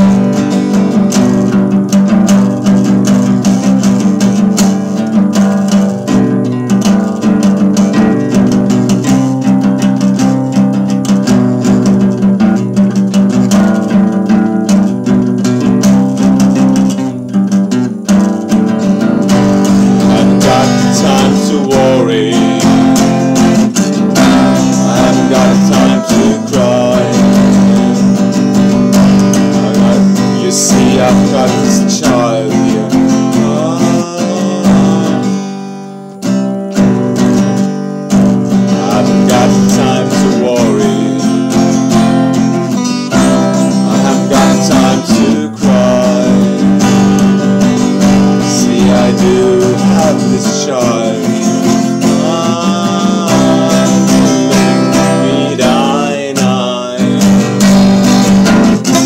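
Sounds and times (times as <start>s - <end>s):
acoustic guitar strumming: 0.0s - 59.0s
man singing: 19.3s - 36.4s, 38.0s - 59.0s.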